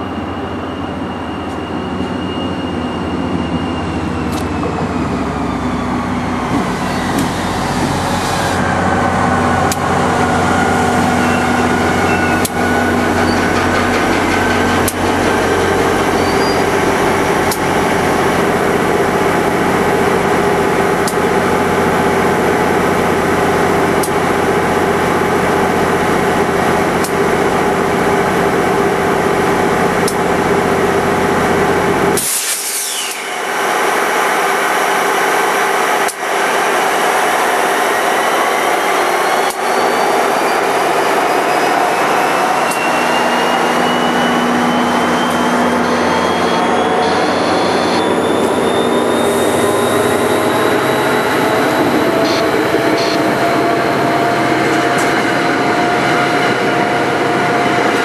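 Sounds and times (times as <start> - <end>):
brake squeal: 0.0 - 8.8, 10.0 - 18.0, 32.2 - 33.4, 38.3 - 56.2
diesel locomotive engine running: 0.0 - 58.0
air hiss: 32.2 - 33.5.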